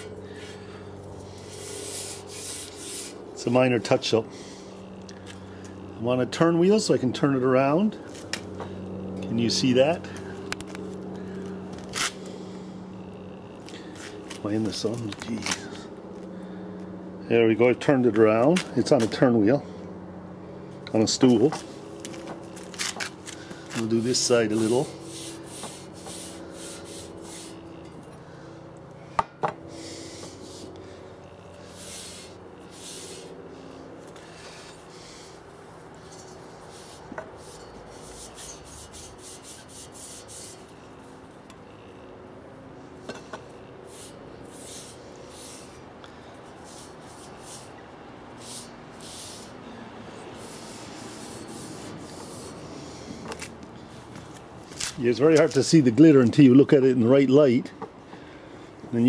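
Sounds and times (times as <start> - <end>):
cloth rubbing on metal tubes: 1.3 - 3.2, 36.0 - 41.2, 50.3 - 53.1.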